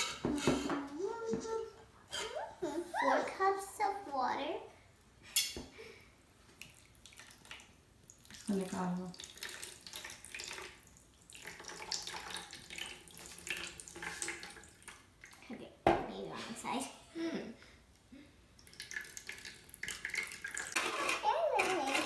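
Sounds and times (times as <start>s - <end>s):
water pouring into a glass bowl: 6.6s - 15.4s, 18.6s - 20.8s.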